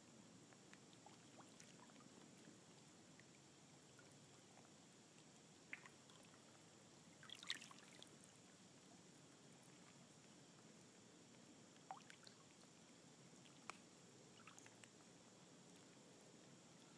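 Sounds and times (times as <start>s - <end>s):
small splashes and drips: 0.5s - 9.0s, 11.3s - 12.8s, 13.4s - 15.1s
water lapping among stones: 5.6s - 8.2s.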